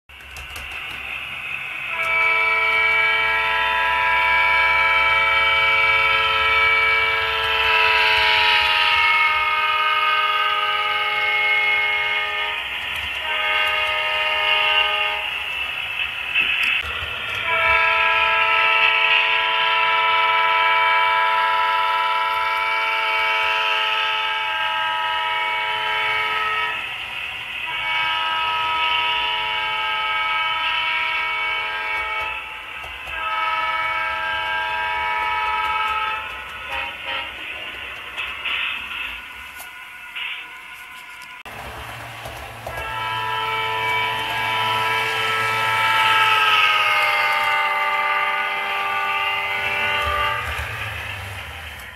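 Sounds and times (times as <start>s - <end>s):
diesel locomotive air horn: 0.5s - 51.9s.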